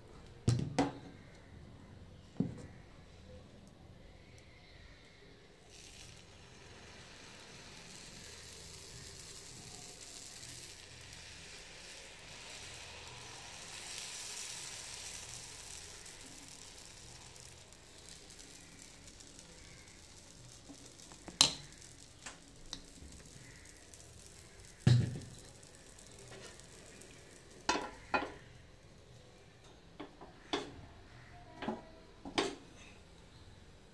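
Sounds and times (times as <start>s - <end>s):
batter sizzling on hot pan: 0.5s - 33.9s
steel plate set over pan: 24.8s - 28.4s
metal utensils clinking on pan: 31.6s - 33.1s.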